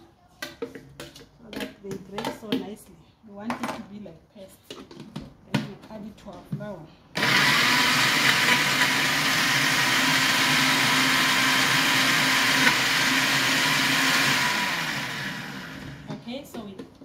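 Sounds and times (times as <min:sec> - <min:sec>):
blender running: 0:07.2 - 0:16.2.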